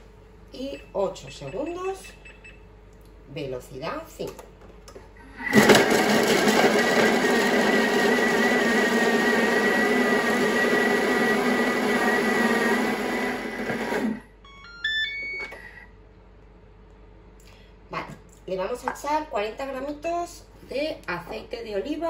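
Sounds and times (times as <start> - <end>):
food processor motor whirring: 5.3 - 14.2.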